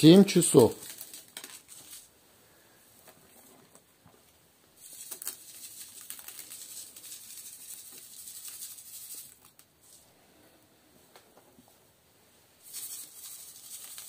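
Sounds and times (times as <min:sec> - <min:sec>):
salt grains sprinkling on fish: 0:00.0 - 0:02.1, 0:04.8 - 0:10.0, 0:12.6 - 0:14.0.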